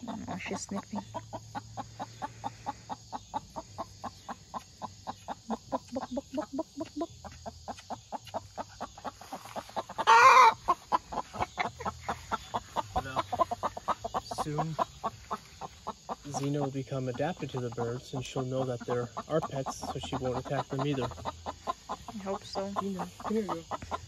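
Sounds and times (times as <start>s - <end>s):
hens clucking: 0.0s - 24.0s.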